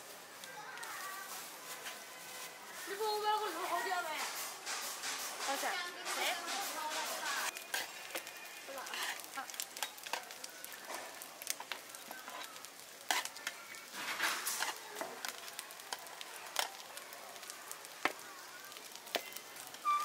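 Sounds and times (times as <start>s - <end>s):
rice cakes sizzling on griddle: 0.0s - 20.0s
metal spatula clicking and scraping: 4.7s - 10.4s, 11.4s - 16.8s.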